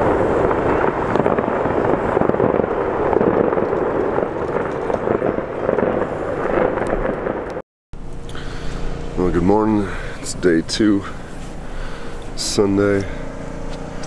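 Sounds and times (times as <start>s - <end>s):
fireworks crackling: 0.0s - 7.6s.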